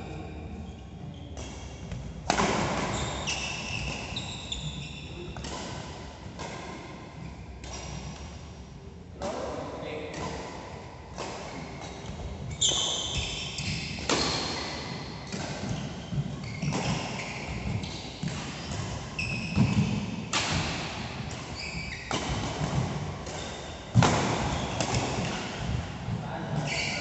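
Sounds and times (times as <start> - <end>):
shoes squeaking on court: 0.6 - 5.6, 11.5 - 20.1, 21.5 - 25.7, 26.5 - 27.0
rackets striking shuttlecock: 13.6 - 25.8.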